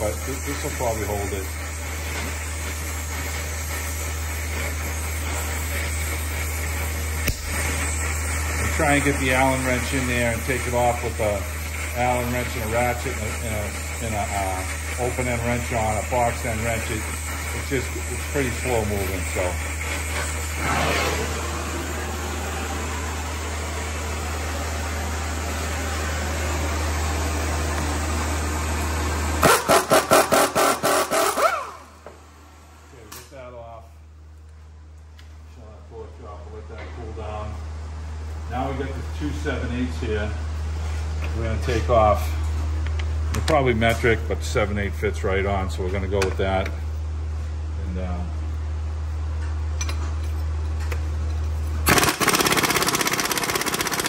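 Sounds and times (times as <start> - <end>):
torch flame hissing: 0.0 - 32.0
ratchet clicks: 51.9 - 54.0.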